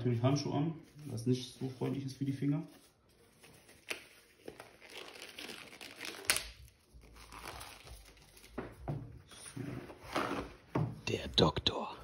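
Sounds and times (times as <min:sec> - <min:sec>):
disposable gloves crinkling: 0:00.8 - 0:08.8.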